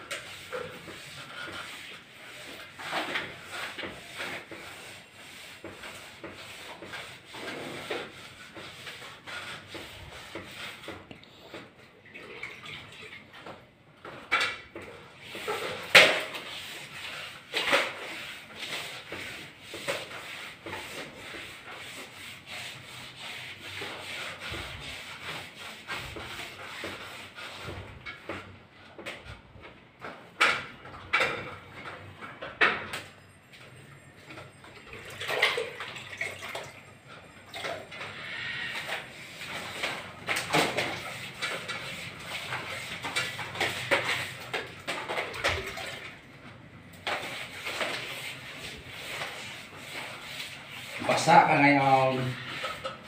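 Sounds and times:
wallpaper being scraped off: 0.0 - 11.7, 14.1 - 29.0, 37.6 - 46.2, 47.0 - 53.0.

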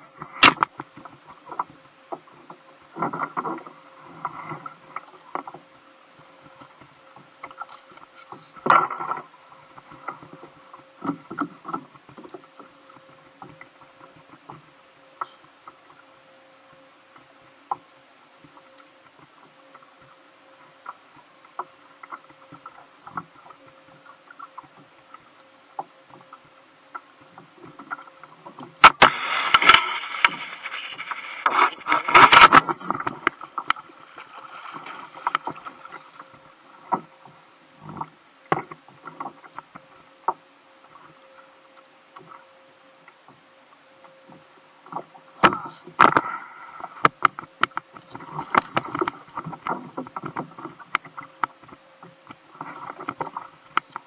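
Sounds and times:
faint steady hum: 0.0 - 54.0
fishing gear clicks and knocks: 28.8 - 33.8
loud rustling with sharp knocks: 28.8 - 37.0.

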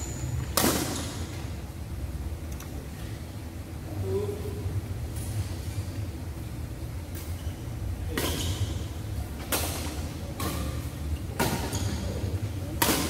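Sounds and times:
rackets hitting shuttlecock: 0.3 - 1.4, 8.1 - 13.0.

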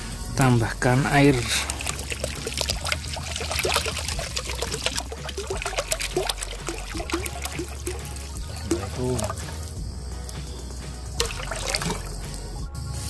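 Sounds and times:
plastic bottle gurgling: 1.1 - 9.8, 11.2 - 12.2
water splashing into a metal wok: 1.2 - 9.8, 11.1 - 12.5.

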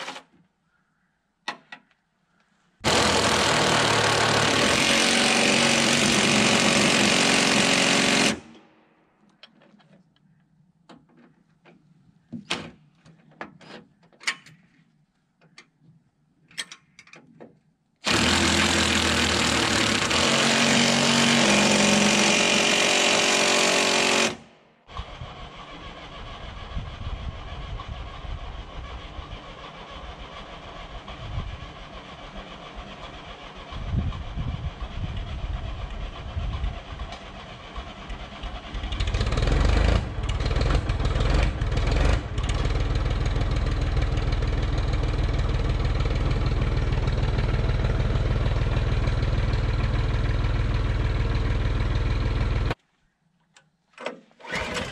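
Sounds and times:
small gasoline engine running: 2.8 - 8.5, 18.0 - 52.8
loud steady noise: 2.8 - 8.6.

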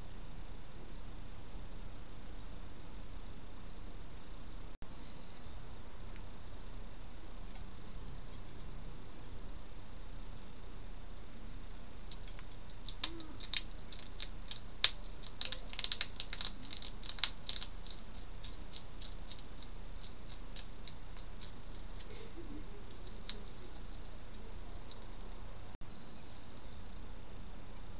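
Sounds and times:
hedgehog chewing crunches: 12.1 - 22.2, 22.8 - 25.2.

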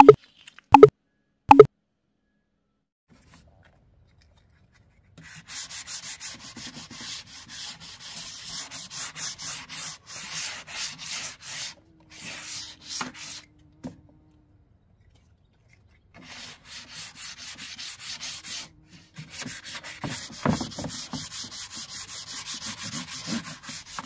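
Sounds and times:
sanding block rubbing wood: 5.3 - 13.4, 16.2 - 24.0.

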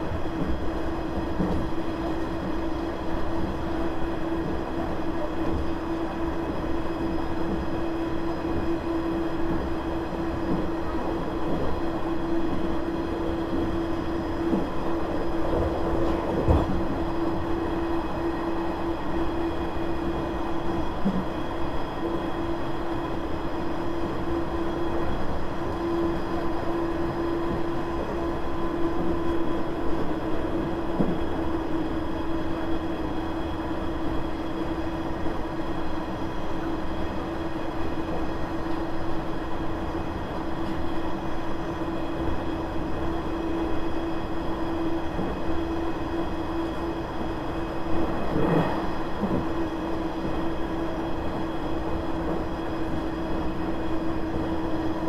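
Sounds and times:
railcar engine and wheels drone: 0.0 - 55.0.

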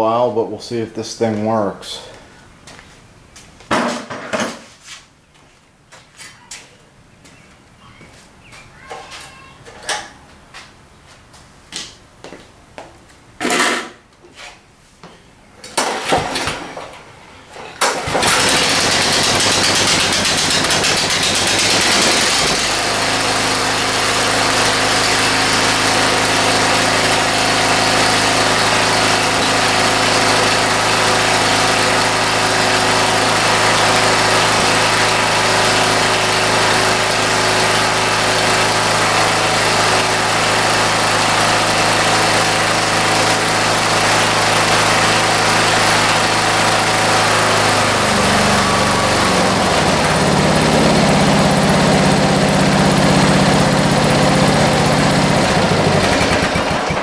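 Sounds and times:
pull starter cord: 15.6 - 17.0, 17.8 - 22.9, 55.1 - 57.0
mower engine running: 15.8 - 57.0.

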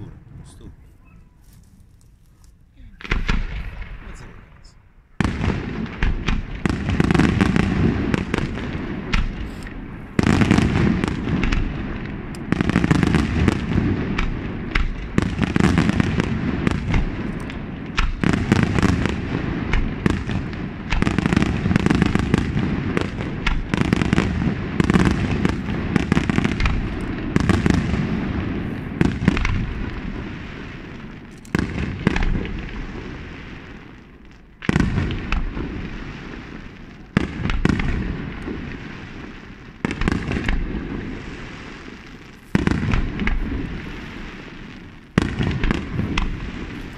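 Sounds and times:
fireworks booming and crackling: 2.7 - 46.9.

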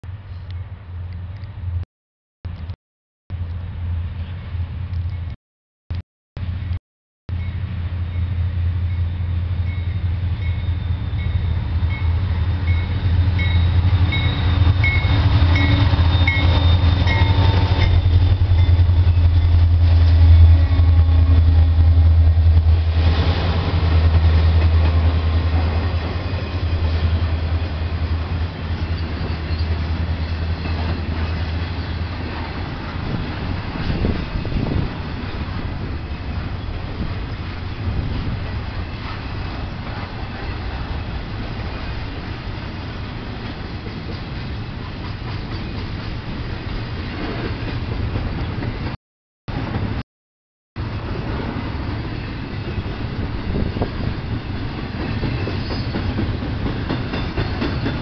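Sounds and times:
locomotive engines droning: 7.3 - 45.0
train wheels clickety-clack: 23.1 - 27.2, 43.4 - 46.3, 47.1 - 49.0, 53.5 - 58.0.

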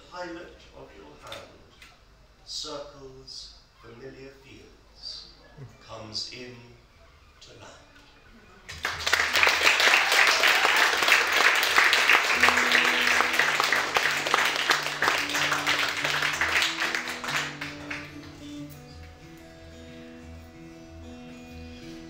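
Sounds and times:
audience applauding: 8.7 - 19.2
acoustic guitar picking notes: 11.8 - 22.0.

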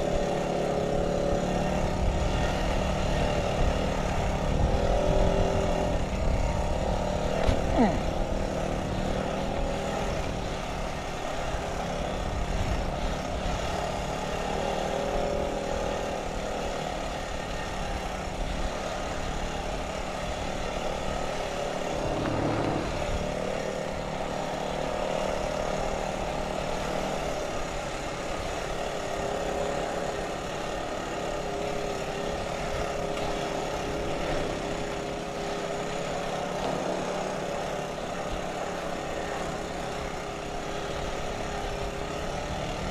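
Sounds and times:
quad bike engine running: 0.0 - 42.9.

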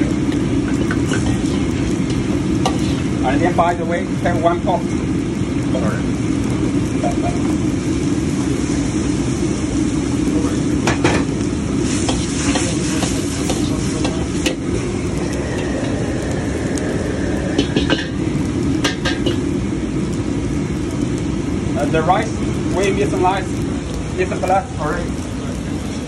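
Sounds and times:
liquid sizzling and bubbling: 0.0 - 26.0
wok burner roaring: 0.0 - 26.0
ladle scraping a wok: 0.8 - 3.2, 11.8 - 16.0.

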